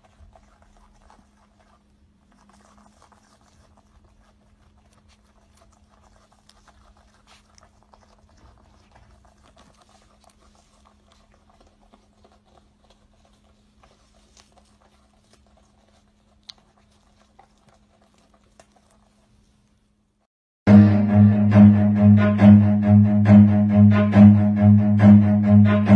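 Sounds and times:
wombat chewing grass: 0.0s - 19.8s.

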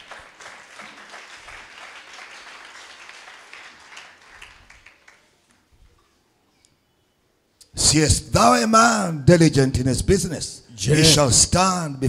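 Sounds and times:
congregation applauding: 0.0s - 5.6s.

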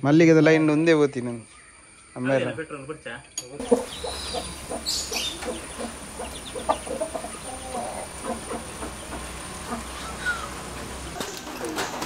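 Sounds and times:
chickens clucking: 3.6s - 12.0s.

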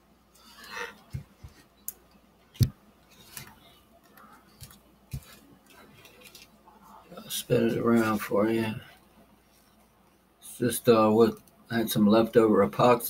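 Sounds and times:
skull clicks and knocks: 1.1s - 3.5s.

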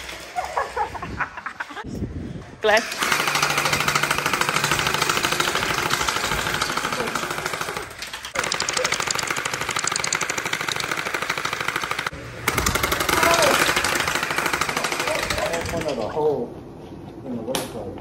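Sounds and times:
gel blaster firing full auto: 2.8s - 16.1s.

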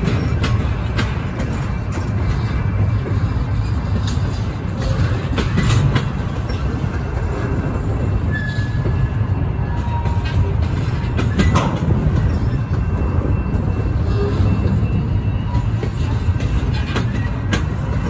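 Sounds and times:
train cars rumbling past: 0.0s - 18.0s
wheels clacking and clanking: 0.0s - 18.0s
faint squeal: 8.2s - 17.4s.

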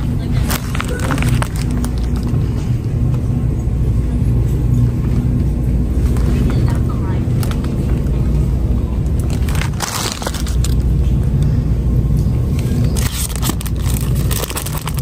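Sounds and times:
steady low rumble: 0.0s - 15.0s
plastic packaging crackling: 0.4s - 2.3s, 9.1s - 10.9s, 12.8s - 15.0s.

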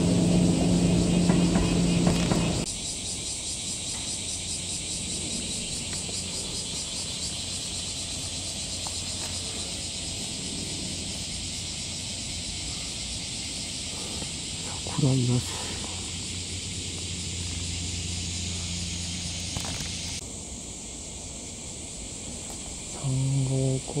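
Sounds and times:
car engine: 0.0s - 2.7s, 14.6s - 20.2s
cicadas buzzing: 0.0s - 24.0s.

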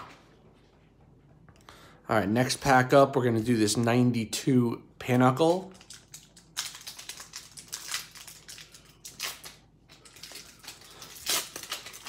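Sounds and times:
foil wrapper tearing and crinkling: 5.7s - 12.0s.

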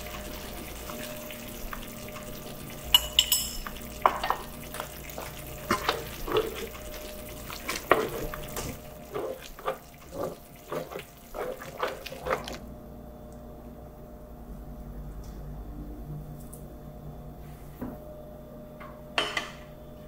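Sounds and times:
soft sizzle: 0.0s - 13.5s
spatula scraping a wok: 7.7s - 12.6s.

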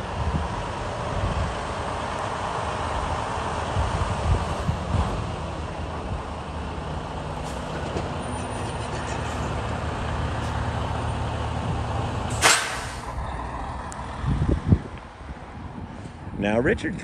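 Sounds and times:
truck diesel engine rumbling: 0.0s - 17.0s
air brake hiss: 12.3s - 13.1s.

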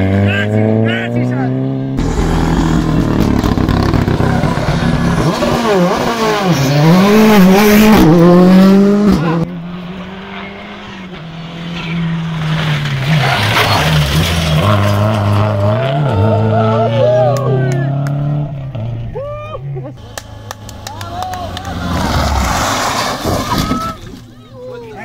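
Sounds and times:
rally car engine revving: 0.0s - 19.2s, 19.8s - 24.4s
car sliding on loose gravel: 11.8s - 15.6s, 21.4s - 25.0s.

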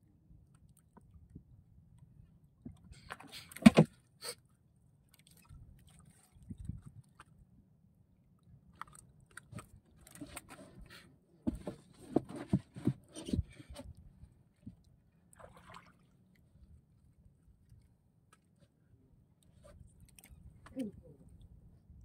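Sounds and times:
clicks and knocks in boat: 2.6s - 4.0s, 8.8s - 14.0s
fish thumping: 3.6s - 3.9s.

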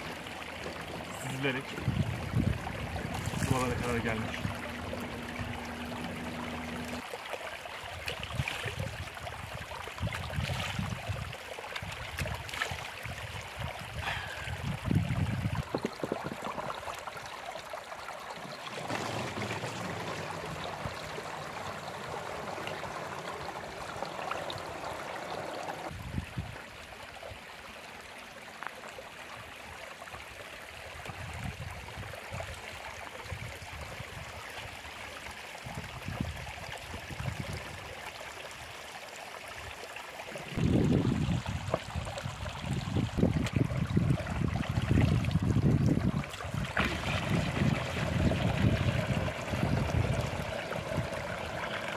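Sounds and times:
stream trickling over stones: 0.0s - 51.9s.

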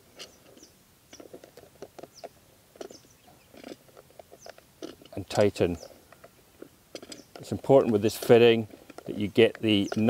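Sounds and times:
bird chirps: 2.0s - 3.6s, 9.6s - 10.0s
plastic fitting creaking and clicking: 3.6s - 10.0s.

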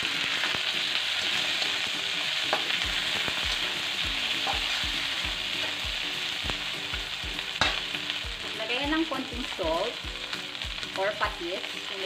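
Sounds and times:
okra sizzling in hot oil: 0.0s - 12.0s
light knocks in wok: 7.6s - 7.8s.

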